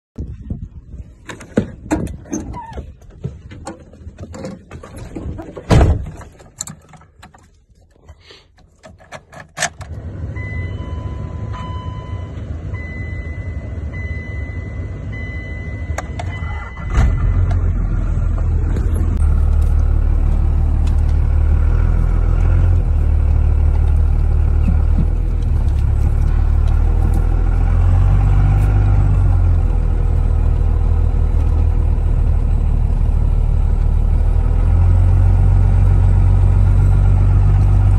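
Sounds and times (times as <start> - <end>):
diesel engine rumbling: 0.2 - 37.9
knocks and bumps: 23.6 - 27.6.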